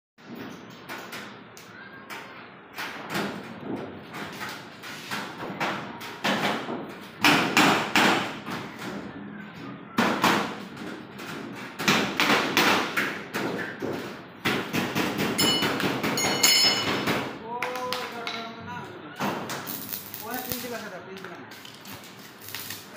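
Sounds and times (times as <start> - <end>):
welding arc crackling: 19.5 - 22.9.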